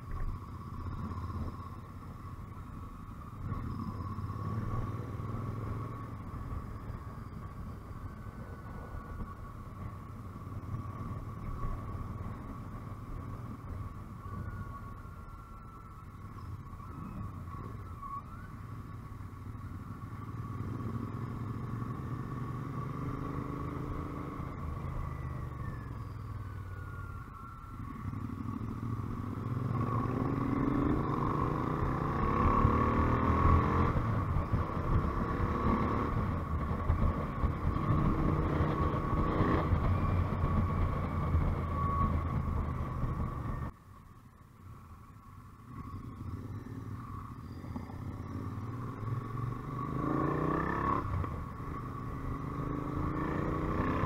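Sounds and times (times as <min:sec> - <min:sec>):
motorcycle engine accelerating: 0:19.6 - 0:27.0, 0:27.8 - 0:43.7, 0:45.7 - 0:54.0
wind noise: 0:29.3 - 0:43.7.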